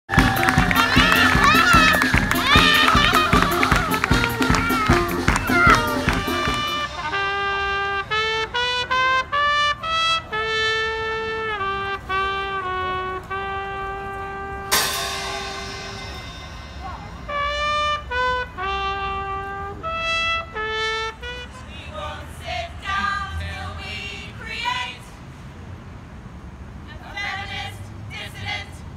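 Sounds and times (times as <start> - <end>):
voices singing: 0.1 - 7.4, 21.5 - 25.3, 26.8 - 28.9
solo brass melody: 0.1 - 22.1.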